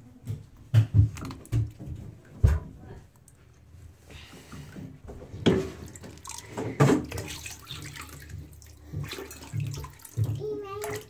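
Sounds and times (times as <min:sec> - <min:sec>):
water splashing in a bathtub: 0:00.0 - 0:11.0
plastic cup pouring water: 0:05.5 - 0:11.0.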